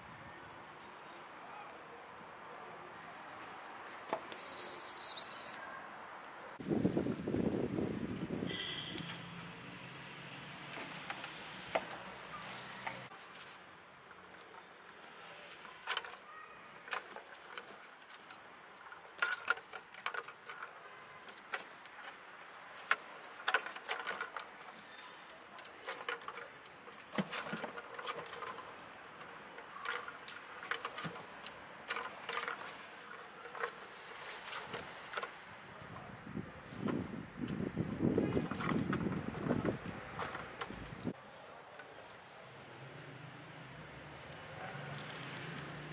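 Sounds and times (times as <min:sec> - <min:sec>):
plastic balls rattling in track: 0:19.0 - 0:20.8, 0:25.7 - 0:35.3.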